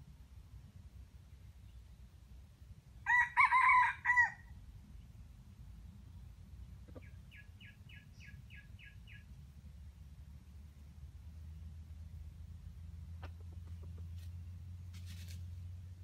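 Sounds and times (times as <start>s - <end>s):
rooster crowing: 3.0s - 4.5s.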